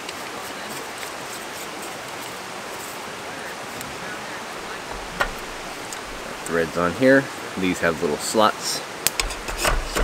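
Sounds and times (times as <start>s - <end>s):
creek flowing: 0.0s - 10.0s
burner screwing clicks: 4.8s - 6.5s, 9.1s - 10.0s.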